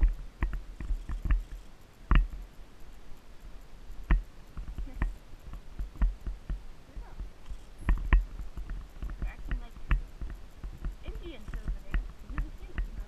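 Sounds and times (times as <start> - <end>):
riding gear jostling: 0.0 - 2.6, 4.4 - 13.0
horse hoofbeats on dirt trail: 4.1 - 13.0.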